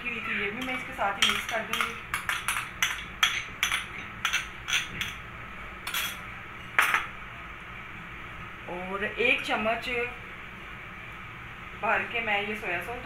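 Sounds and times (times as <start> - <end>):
spoon clinking against cookware: 0.3 - 5.2.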